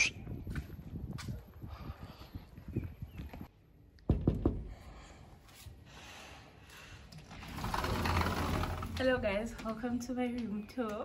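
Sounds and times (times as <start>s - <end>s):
footsteps on paving: 0.2s - 1.6s.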